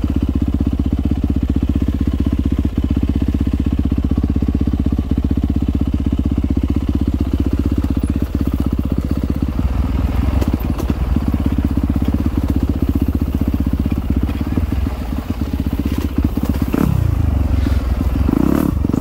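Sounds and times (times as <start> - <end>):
dirt bike engine running: 0.0 - 19.0
crunching and clatter from ground: 7.6 - 17.8.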